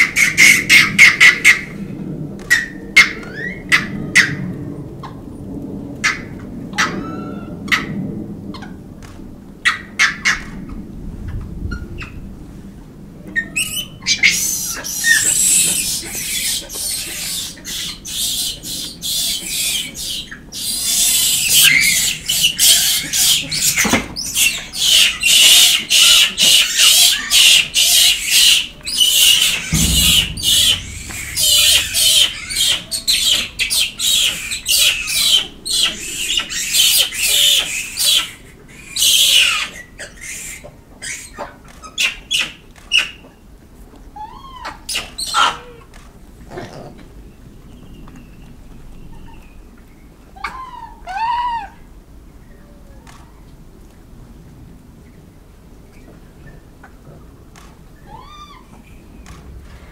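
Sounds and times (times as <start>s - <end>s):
monkeys squealing and shrieking: 13.6s - 29.4s, 34.8s - 41.4s.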